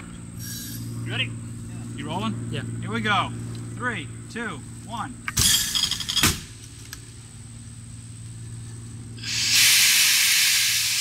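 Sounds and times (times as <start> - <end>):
low steady hum: 0.0 - 11.0
compressed air hissing: 0.4 - 1.0, 9.2 - 11.0.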